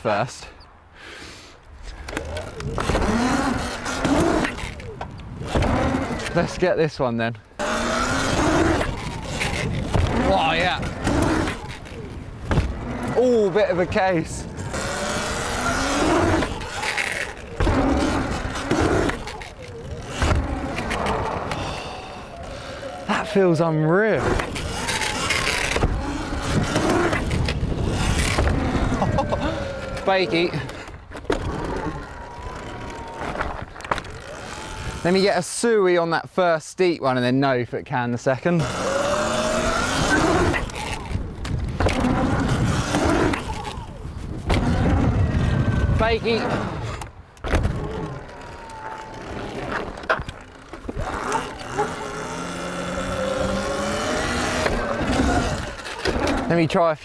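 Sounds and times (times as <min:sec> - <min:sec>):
tyre noise on wooden ramps: 0:01.8 - 0:35.7, 0:38.4 - 0:56.8
electric motor whine: 0:38.6 - 0:56.4.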